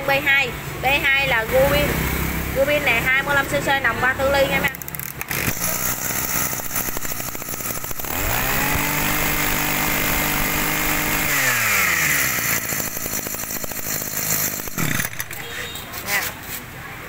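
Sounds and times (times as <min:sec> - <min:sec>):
brush cutter engine revving: 0:04.6 - 0:16.3.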